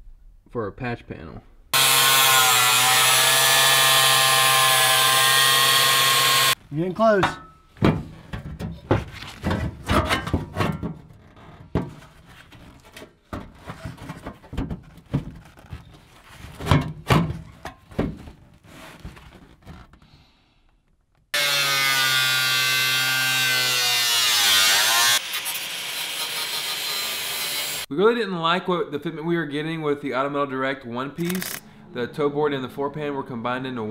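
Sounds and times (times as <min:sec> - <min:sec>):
angle grinder cutting metal: 0:01.8 - 0:06.6, 0:21.4 - 0:27.9.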